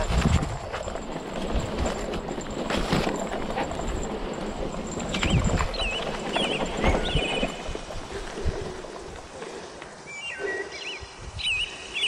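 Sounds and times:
bike knocks and rattles: 0:00.0 - 0:09.3
bike rolling over bumpy grass: 0:00.0 - 0:10.1
bird singing: 0:04.3 - 0:09.1, 0:10.0 - 0:12.0.

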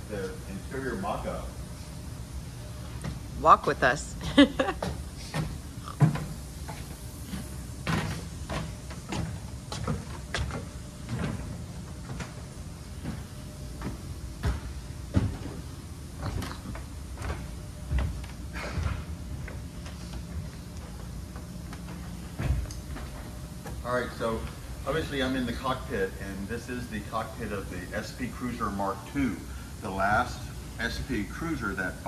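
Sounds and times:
steady low hum: 0:00.0 - 0:32.0
footsteps on wooden stairs: 0:05.4 - 0:23.8.

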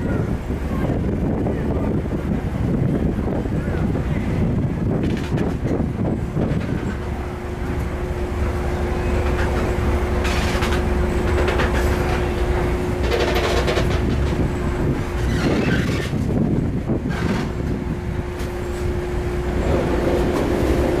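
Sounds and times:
diesel engine idling: 0:07.0 - 0:15.3.

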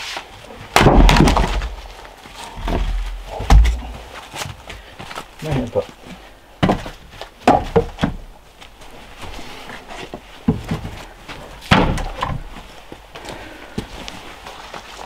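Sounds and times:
knocks and thuds: 0:00.8 - 0:01.8, 0:02.6 - 0:04.1, 0:06.6 - 0:08.2, 0:11.7 - 0:12.5.

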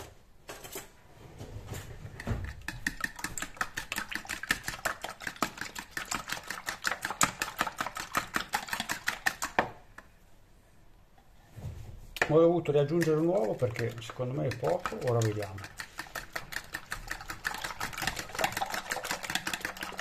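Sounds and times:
fork beating eggs in bowl: 0:02.2 - 0:10.1, 0:12.2 - 0:20.0.

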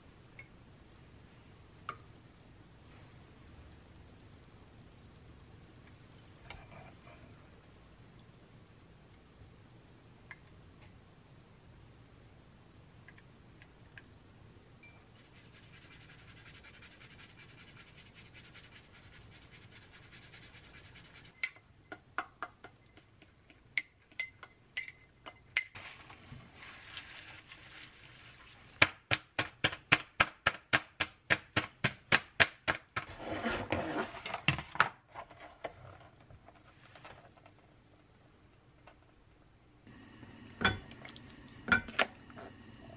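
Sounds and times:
chopsticks clinking against glass bowl: 0:22.6 - 0:25.8.

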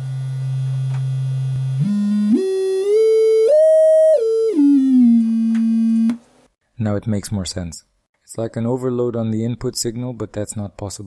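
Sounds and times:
distorted test tone through speaker: 0:00.0 - 0:06.2.

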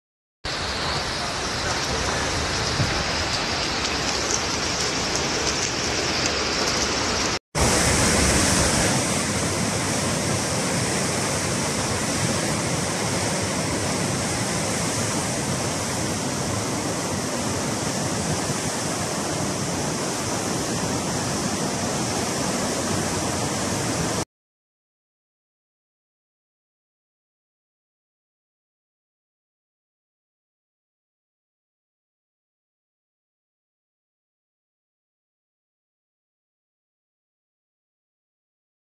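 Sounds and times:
water pouring over a wall: 0:00.5 - 0:23.9
floodwater rushing: 0:00.5 - 0:24.2.

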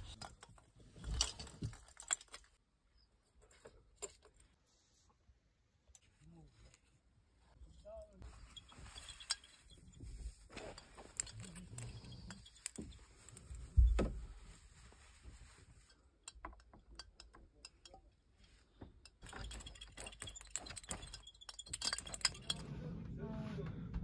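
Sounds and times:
ornaments clinking: 0:00.0 - 0:02.6, 0:08.2 - 0:13.8, 0:15.8 - 0:22.6.

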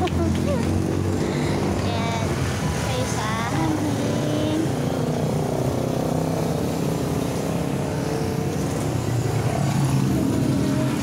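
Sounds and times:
vehicle engine droning: 0:00.0 - 0:11.0.

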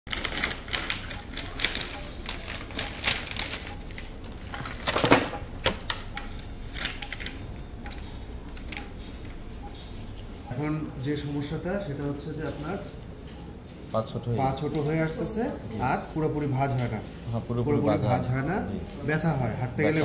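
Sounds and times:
plastic and paper packaging crinkling: 0:00.1 - 0:09.0.

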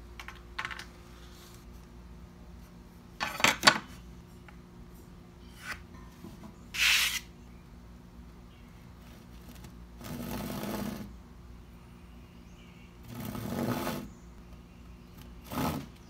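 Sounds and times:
tools clattering: 0:03.2 - 0:03.9
hand saw cutting wood: 0:13.1 - 0:14.1, 0:15.4 - 0:16.0.

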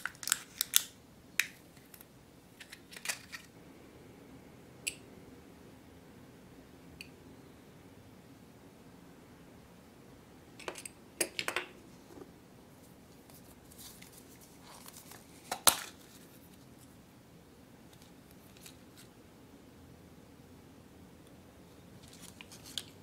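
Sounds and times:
plastic wrapper crinkling: 0:00.0 - 0:01.0.

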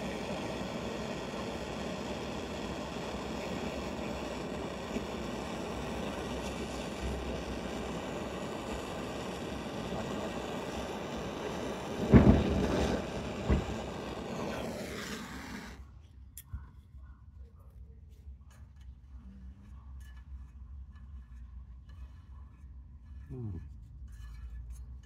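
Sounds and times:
rumbling flame flares: 0:00.0 - 0:15.9
torch jet flame hissing: 0:00.0 - 0:15.9.

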